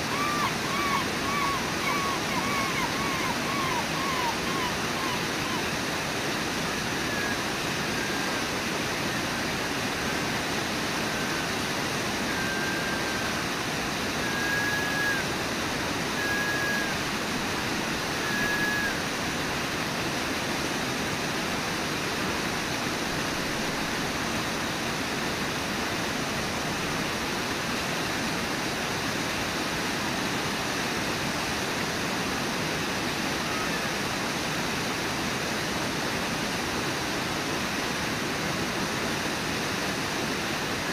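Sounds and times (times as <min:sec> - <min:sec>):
waterfall rushing: 0:00.0 - 0:40.9.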